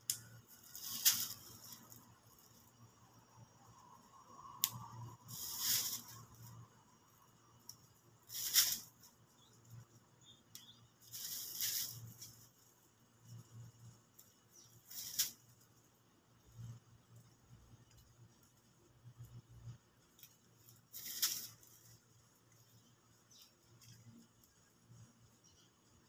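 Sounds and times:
rustling of plastic bag: 0:00.3 - 0:02.6, 0:05.2 - 0:06.6, 0:11.0 - 0:13.6, 0:20.5 - 0:24.1.

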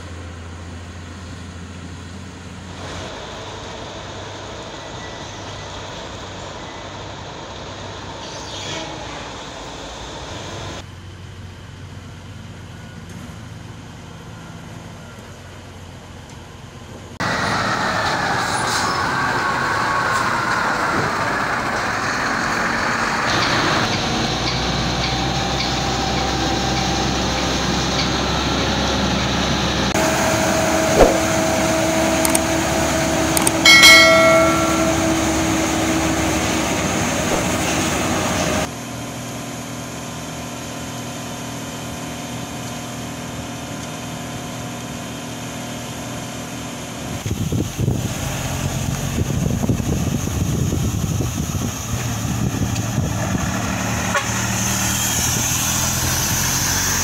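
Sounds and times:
diesel truck engines running: 0:00.0 - 0:57.0
sharp knock: 0:31.0 - 0:31.4.

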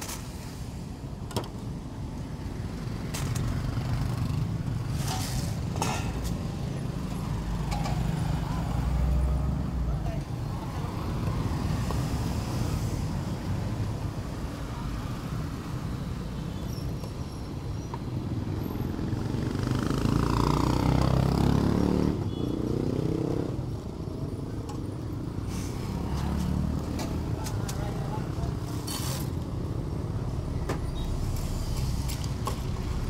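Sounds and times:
street traffic rumble: 0:00.0 - 0:33.0
vehicle engine passing: 0:19.4 - 0:22.2.

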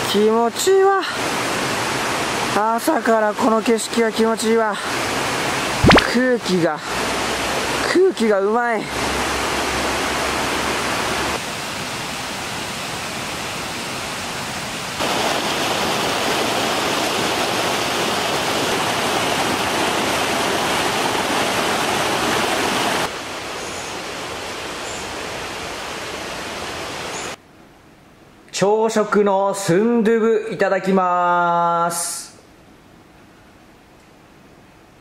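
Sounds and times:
stream rushing over rocks: 0:04.7 - 0:27.4.

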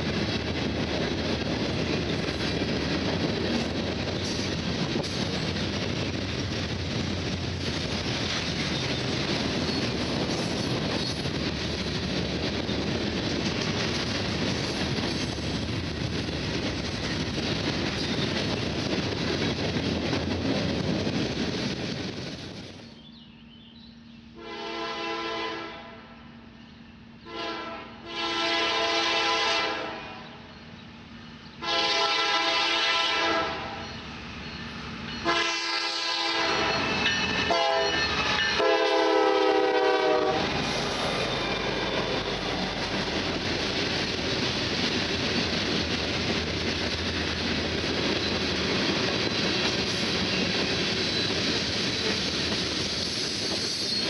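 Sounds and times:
locomotive air horn blasts: 0:24.4 - 0:26.2, 0:27.3 - 0:30.4, 0:31.6 - 0:33.8, 0:35.2 - 0:36.8, 0:37.5 - 0:38.0, 0:38.6 - 0:40.5.

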